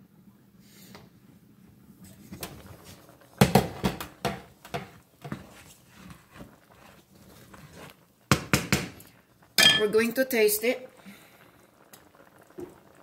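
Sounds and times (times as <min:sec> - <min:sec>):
wooden spoon scraping a pan: 0:02.2 - 0:08.1.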